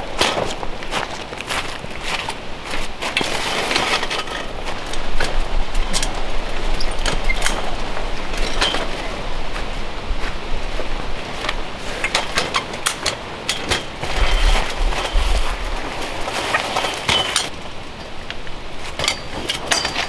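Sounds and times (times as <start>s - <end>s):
footsteps crunching through dry leaves: 0.0s - 6.8s, 7.7s - 12.0s, 14.0s - 17.4s.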